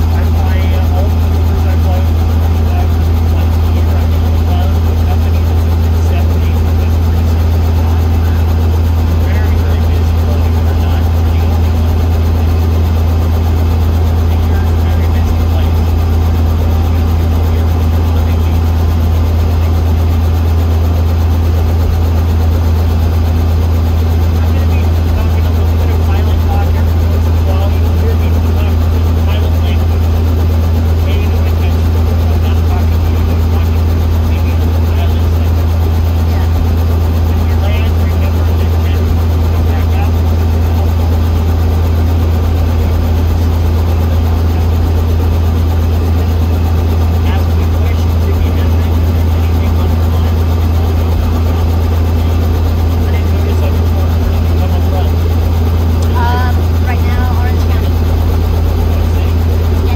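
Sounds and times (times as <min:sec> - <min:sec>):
helicopter engine and rotor drone: 0:00.0 - 0:59.9.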